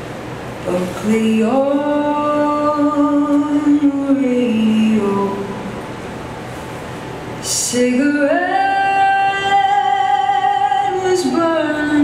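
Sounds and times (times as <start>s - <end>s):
person singing: 0.7s - 5.7s, 7.5s - 12.0s.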